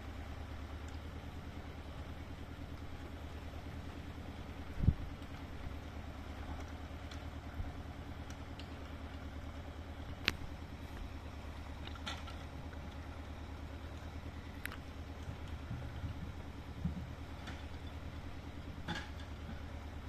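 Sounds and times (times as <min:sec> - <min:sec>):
engine running: 0:00.0 - 0:20.0
faint clatter: 0:11.7 - 0:18.1, 0:18.8 - 0:19.7.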